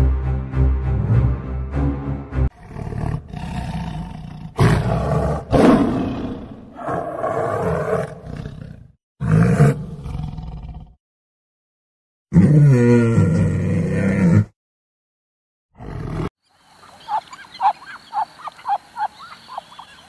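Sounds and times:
tiger growling and roaring: 0:02.5 - 0:11.0, 0:12.3 - 0:14.5, 0:15.8 - 0:16.3.

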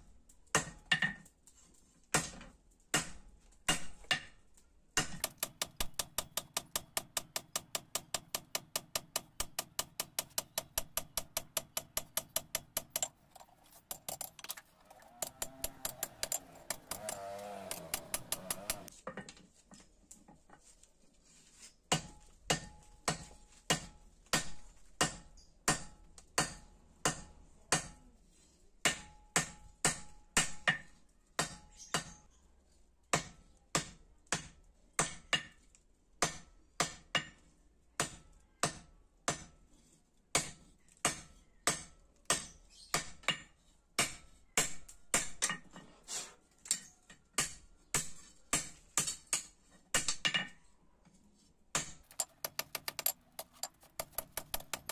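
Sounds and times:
hammer striking metal on anvil: 0:05.0 - 0:13.1, 0:15.2 - 0:18.9, 0:21.9 - 0:28.0.

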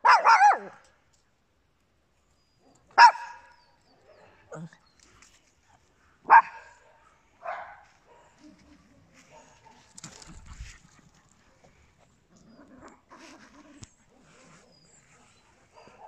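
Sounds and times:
small dog barking: 0:00.0 - 0:00.8, 0:03.0 - 0:04.7, 0:06.3 - 0:09.9.

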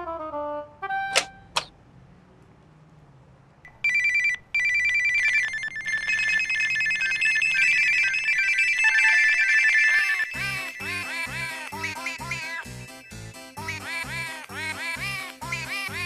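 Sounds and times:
electronic telephone ringing: 0:03.7 - 0:12.9
overlapping phones ringing: 0:03.7 - 0:15.4.

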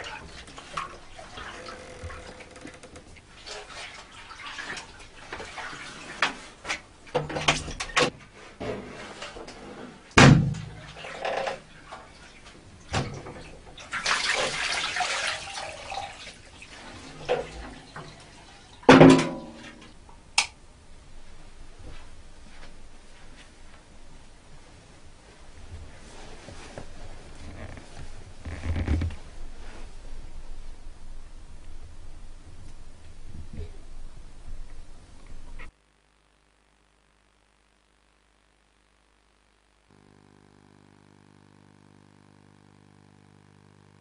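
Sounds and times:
water pouring: 0:00.0 - 0:06.3, 0:13.8 - 0:18.6
metal washbasin knocks and clanks: 0:18.9 - 0:19.6.

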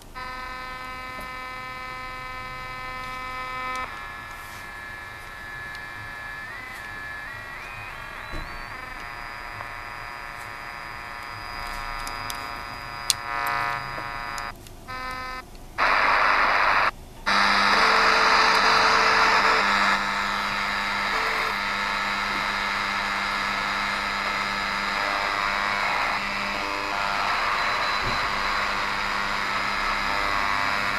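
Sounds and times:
radio buzz with overtones: 0:00.0 - 0:30.9
radio static hiss: 0:00.0 - 0:30.9
steady whistle tones: 0:05.6 - 0:10.0.

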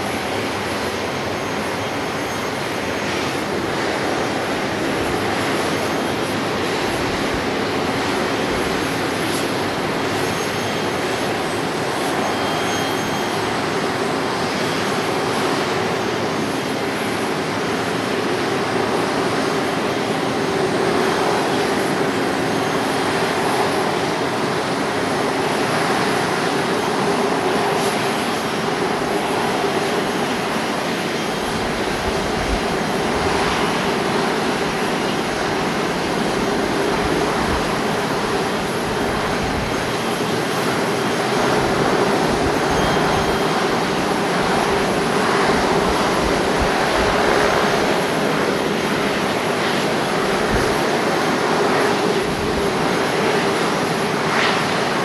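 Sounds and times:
jet engines idling: 0:00.0 - 0:55.0.

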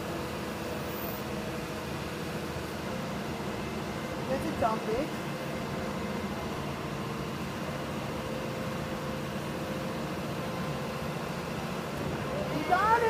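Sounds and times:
excavator engine running: 0:00.0 - 0:13.0.

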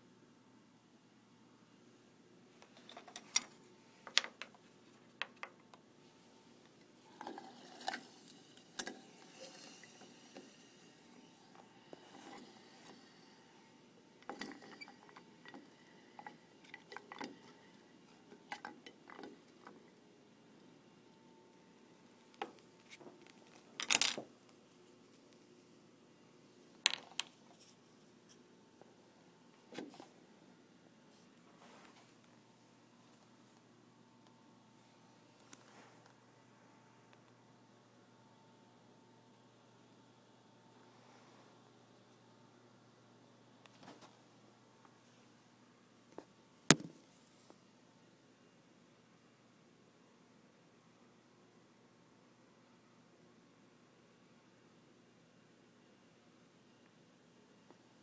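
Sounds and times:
room hiss: 0:00.0 - 0:58.0
small clicks and knocks: 0:02.6 - 0:05.8, 0:26.7 - 0:27.8.

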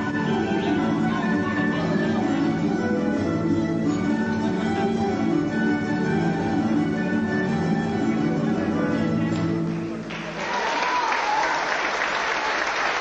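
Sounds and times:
folk dance music: 0:00.0 - 0:11.4
audience applause: 0:10.0 - 0:13.0.

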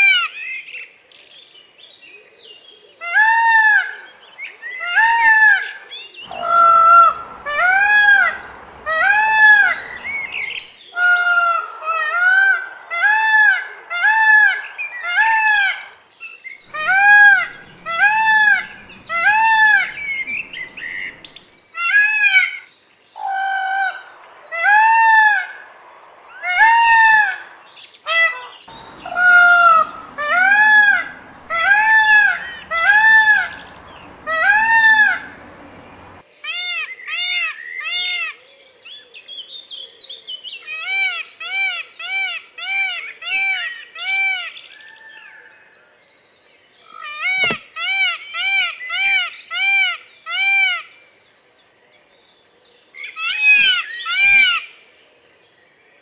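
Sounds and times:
peacock calling: 0:04.8 - 0:15.9, 0:16.7 - 0:22.5, 0:26.3 - 0:38.4, 0:47.0 - 0:50.9.

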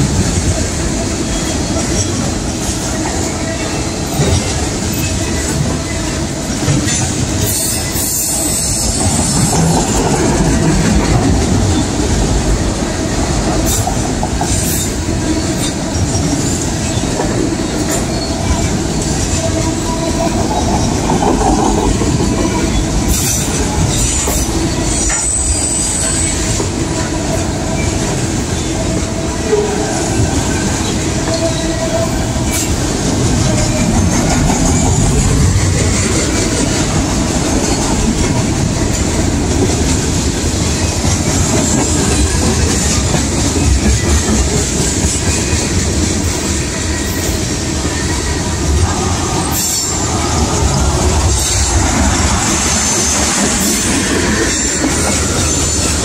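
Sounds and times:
train rumbling and rattling past: 0:00.0 - 0:56.0
high wheel squeals: 0:22.5 - 0:28.8.

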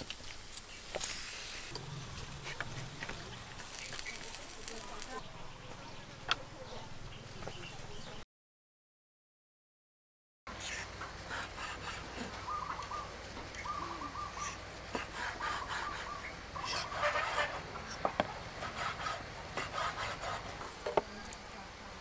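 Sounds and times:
birds calling: 0:10.5 - 0:20.6.

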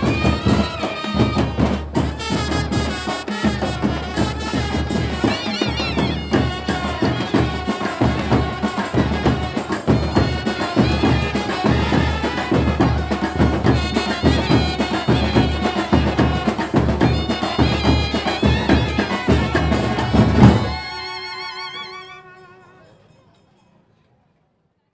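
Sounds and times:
fast dense drumming: 0:00.0 - 0:20.8
trumpets: 0:00.0 - 0:23.1
wavering held note: 0:19.8 - 0:23.0.

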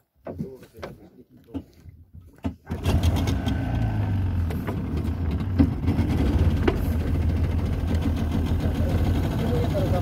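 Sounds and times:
boat engine humming: 0:02.7 - 0:10.0.

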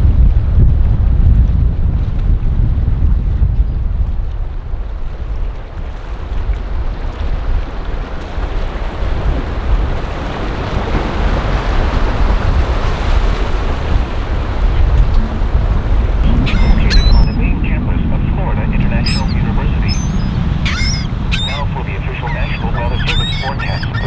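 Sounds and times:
wind buffeting the microphone: 0:00.0 - 0:24.0
boat wash: 0:04.8 - 0:24.0
surf rushing: 0:07.3 - 0:24.0.

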